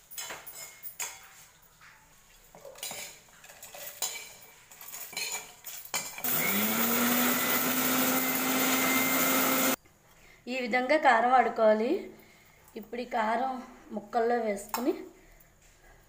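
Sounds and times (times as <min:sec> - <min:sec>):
metal utensils clinking: 0:00.0 - 0:01.6, 0:02.6 - 0:09.8
mixer grinder motor running: 0:06.2 - 0:09.8.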